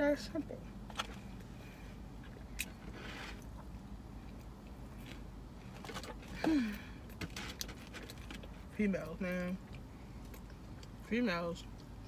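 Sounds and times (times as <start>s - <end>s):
clicks and rustles of handling food: 4.3s - 8.7s.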